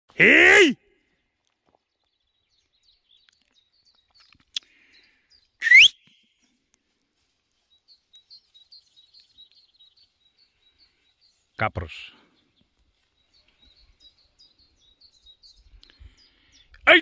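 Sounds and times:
small bird chirping: 1.7s - 6.4s, 7.6s - 11.6s, 12.4s - 16.9s
rising whistle: 5.6s - 6.0s.

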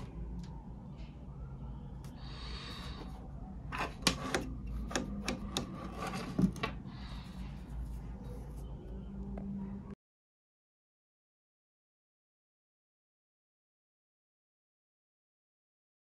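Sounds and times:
cable rubbing on hard surface: 3.7s - 8.6s.

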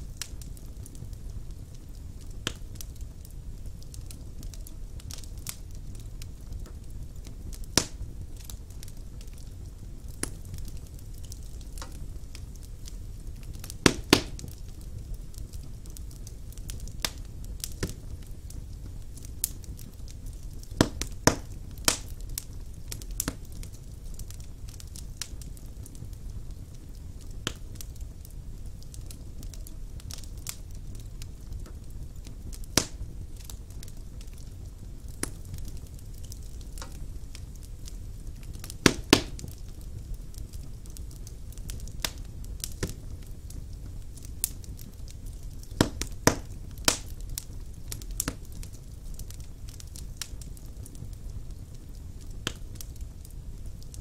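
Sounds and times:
fire pops and crackles: 0.0s - 54.0s
low rumble of flames: 0.0s - 54.0s.

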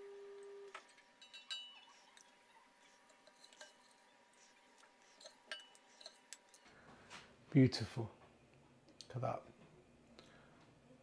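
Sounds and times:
metal spoon clinking on pot: 0.8s - 2.3s, 3.1s - 4.1s, 5.2s - 6.6s.

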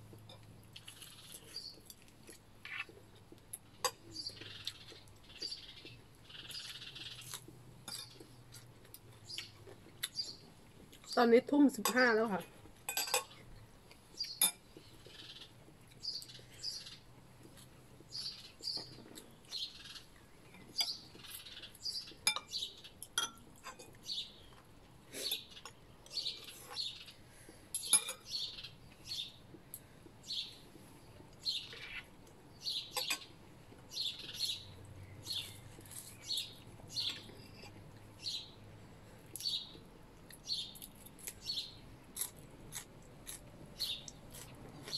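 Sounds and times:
songbirds singing: 0.8s - 2.0s, 3.7s - 8.3s, 9.1s - 12.4s, 13.0s - 17.2s, 18.0s - 38.7s, 39.3s - 41.9s, 43.8s - 44.2s
cutlery clinking on plate: 12.9s - 13.4s.

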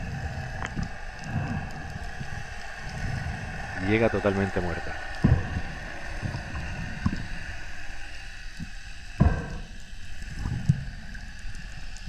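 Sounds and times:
muffled underwater hiss: 0.0s - 12.0s
dull knocks underwater: 4.9s - 7.8s, 8.6s - 11.0s.

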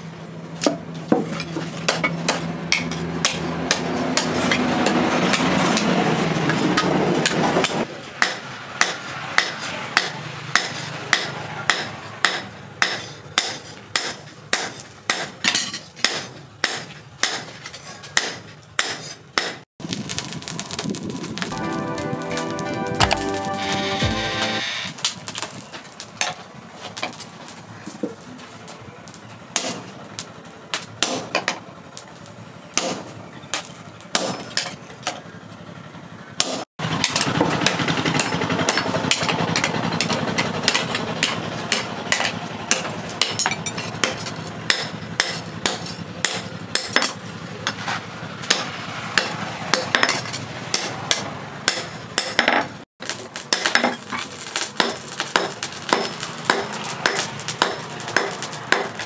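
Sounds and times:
hammer striking hot steel on anvil: 0.6s - 19.6s, 29.6s - 29.9s, 30.7s - 31.6s, 32.8s - 34.8s, 36.4s - 52.7s, 53.4s - 59.0s.

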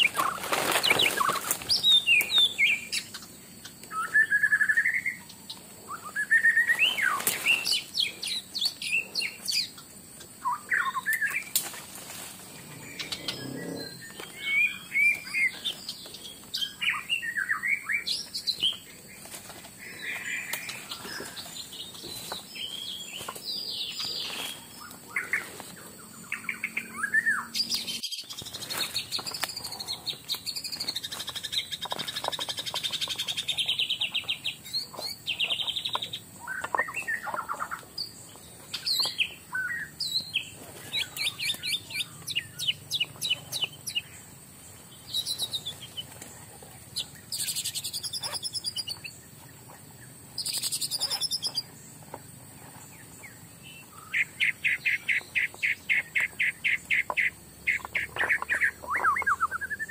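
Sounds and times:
birds chirping and calling: 0.0s - 59.9s.

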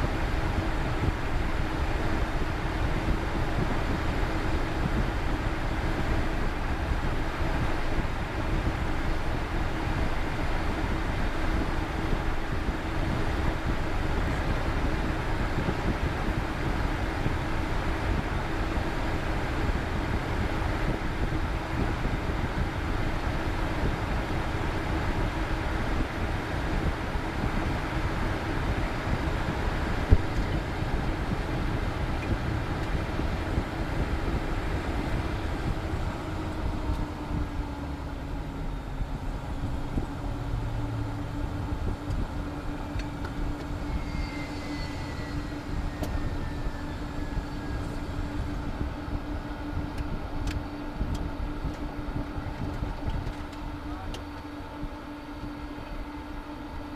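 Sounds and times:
jet engines idling: 0.0s - 56.9s
high whine falling in pitch: 28.9s - 52.9s.

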